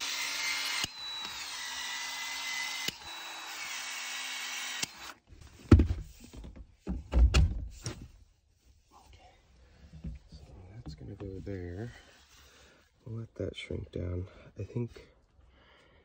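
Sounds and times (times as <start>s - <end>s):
expansion tool motor whining: 0.0s - 5.2s.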